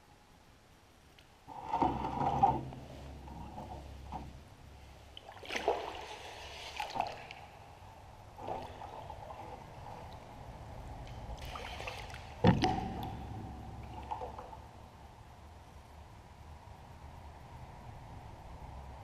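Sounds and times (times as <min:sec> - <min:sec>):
paddle strokes splashing in culvert: 0:01.5 - 0:14.8.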